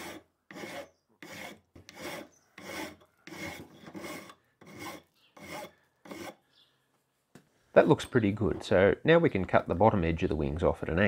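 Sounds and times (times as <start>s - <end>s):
hand file on steel: 0.0s - 6.5s.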